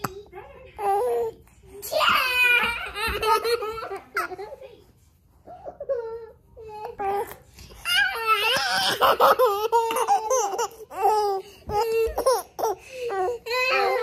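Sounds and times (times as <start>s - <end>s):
baby laughing: 2.3s - 4.5s, 7.9s - 14.0s.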